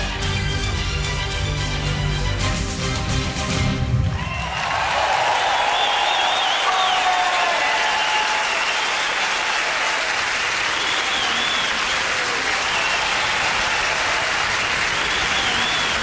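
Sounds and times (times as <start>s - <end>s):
audience applauding and cheering: 3.5s - 16.0s.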